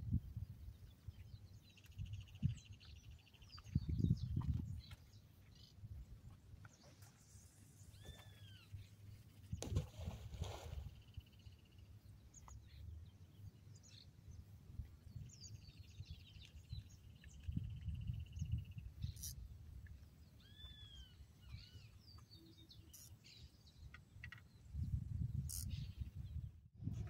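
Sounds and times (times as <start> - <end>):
wind rumble on microphone: 0.0 - 5.2, 9.4 - 11.0, 14.7 - 19.9, 24.5 - 27.0
whistled bird calls: 20.4 - 21.9
bird chirps: 20.4 - 24.6.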